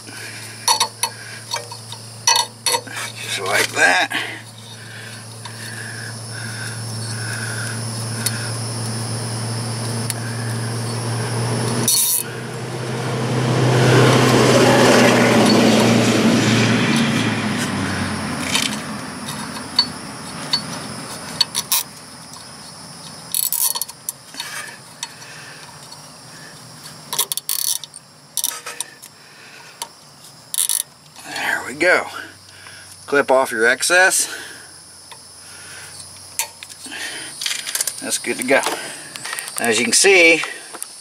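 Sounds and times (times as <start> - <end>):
steady low hum: 0.0 - 40.8
rush of noise: 5.6 - 19.5.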